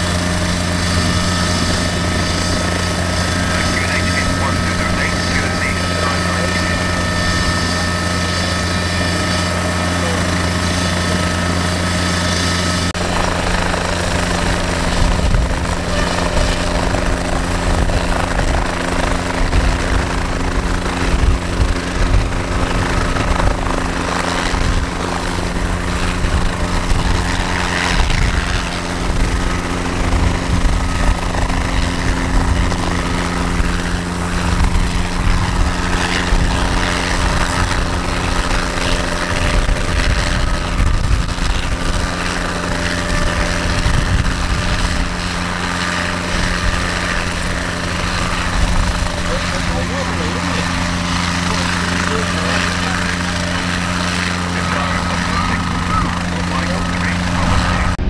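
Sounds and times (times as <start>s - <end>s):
engine drone: 0.0s - 58.0s
light aircraft engine running: 0.0s - 58.0s
wind gusting on microphone: 0.0s - 58.0s.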